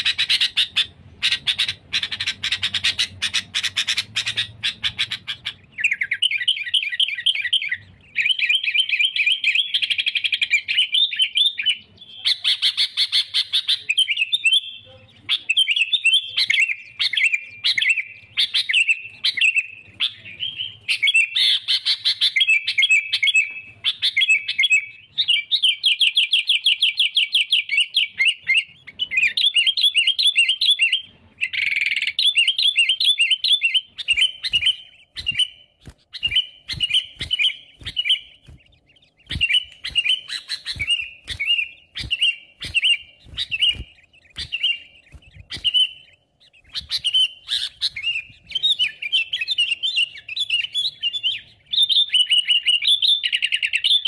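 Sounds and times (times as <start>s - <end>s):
bird singing fast trills: 0.0s - 54.0s.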